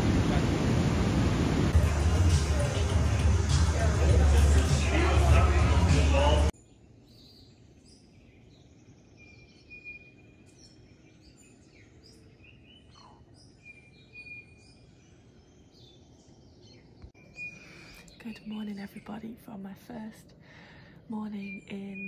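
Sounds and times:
birds chirping and whistling: 6.2s - 18.8s.

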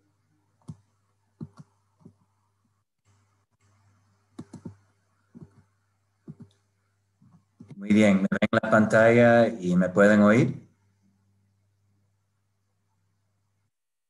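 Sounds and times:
faint electrical hum: 0.0s - 13.8s
computer mouse clicks: 0.6s - 2.3s, 3.1s - 7.8s.

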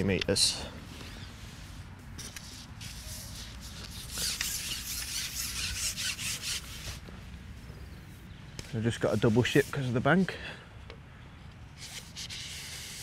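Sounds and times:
fishing pole scraping: 1.0s - 7.1s.

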